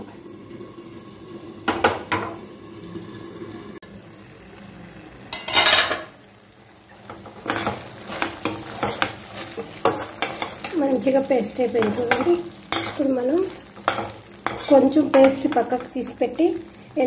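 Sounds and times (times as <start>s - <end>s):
light sizzle: 0.0s - 17.0s
metal spatula scraping a steel pan: 7.4s - 10.8s, 11.8s - 13.1s, 13.8s - 15.9s.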